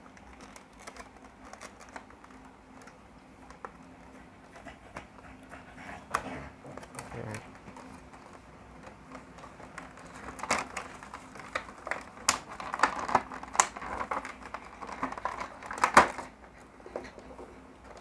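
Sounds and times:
plastic packaging clicks and crackles: 0:00.0 - 0:04.7, 0:06.1 - 0:18.0.

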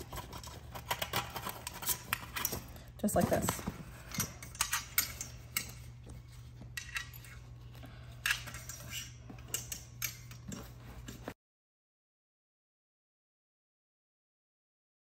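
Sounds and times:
metal buckles clinking on frame: 0:00.0 - 0:11.3.

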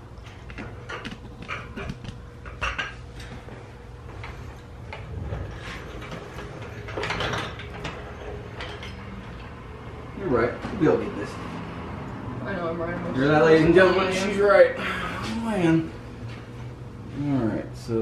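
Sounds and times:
steady low hum: 0:00.0 - 0:18.0
metal tools clinking: 0:05.9 - 0:09.5.

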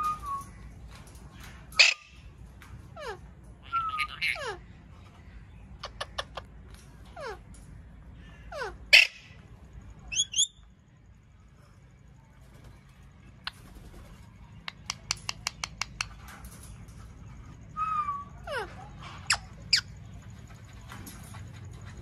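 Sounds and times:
parakeets screeching and chirping: 0:01.4 - 0:05.2, 0:08.3 - 0:09.5, 0:17.4 - 0:21.7.

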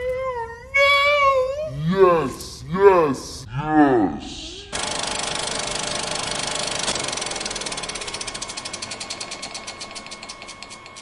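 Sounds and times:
film flapping against spinning reel: 0:06.8 - 0:11.0.

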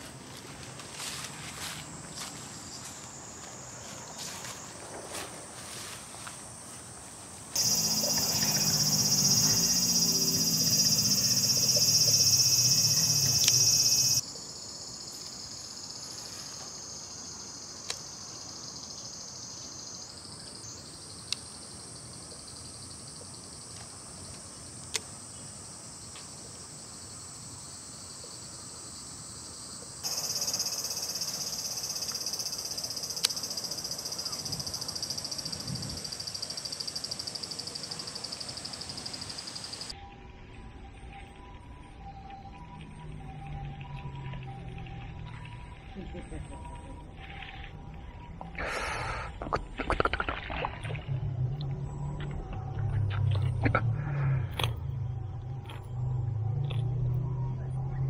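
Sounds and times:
insects buzzing: 0:01.0 - 0:40.1
frog croaking: 0:07.6 - 0:14.2, 0:30.0 - 0:39.9, 0:48.5 - 0:55.9.

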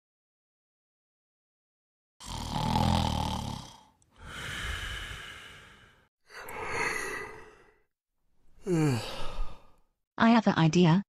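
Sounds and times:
person snoring: 0:02.2 - 0:07.9, 0:08.6 - 0:09.8
long breathy exhale: 0:04.2 - 0:07.8, 0:08.6 - 0:09.8
person sighing: 0:04.2 - 0:07.8, 0:08.6 - 0:09.8.

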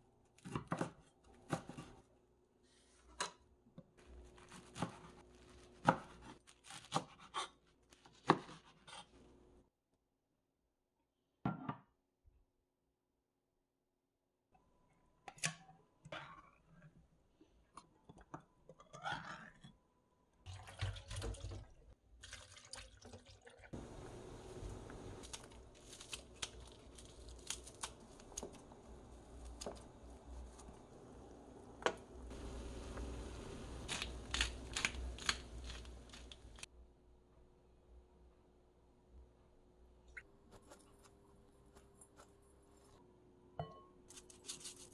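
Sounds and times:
soup boiling in a pot: 0:22.9 - 0:25.8, 0:28.0 - 0:36.6.

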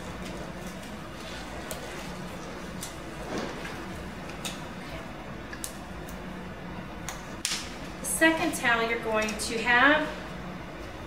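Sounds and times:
gloves rustling and clicking: 0:00.0 - 0:04.7
low room hum: 0:00.0 - 0:11.0.

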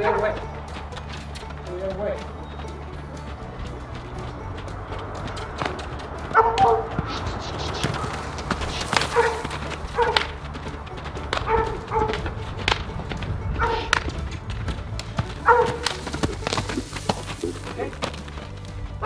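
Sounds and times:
horse hooves on dirt: 0:00.0 - 0:19.0
dog barking: 0:06.4 - 0:06.8, 0:09.1 - 0:10.2, 0:15.5 - 0:15.8.

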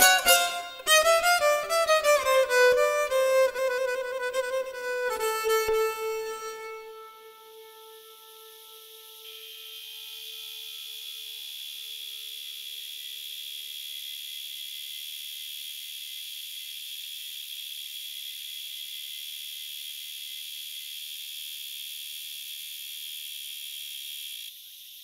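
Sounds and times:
held guitar note: 0:00.0 - 0:09.6
faint hiss: 0:00.0 - 0:11.9
insect chorus buzzing: 0:02.4 - 0:25.0.

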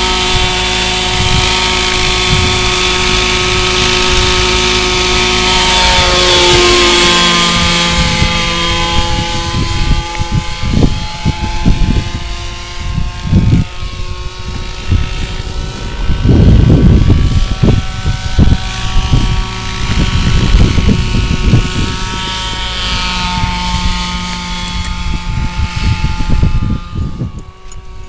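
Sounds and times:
model helicopter whine: 0:00.0 - 0:28.0
wind buffeting microphone: 0:00.0 - 0:28.0.

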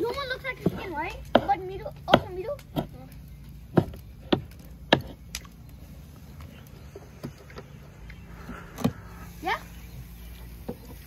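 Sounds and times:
knife chopping on wooden board: 0:03.7 - 0:05.2.

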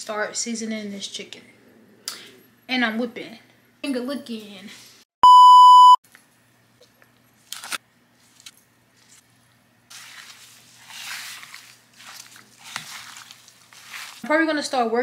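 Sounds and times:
censor beep: 0:05.2 - 0:06.0
seasoning shaking and rustling: 0:09.9 - 0:14.8.

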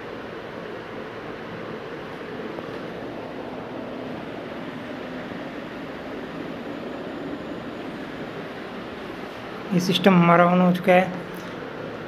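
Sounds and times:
computer fans whirring: 0:00.0 - 0:12.0.

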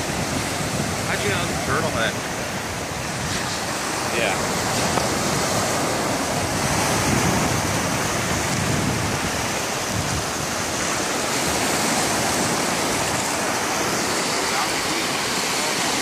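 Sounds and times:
small waves breaking on beach: 0:00.0 - 0:16.0.

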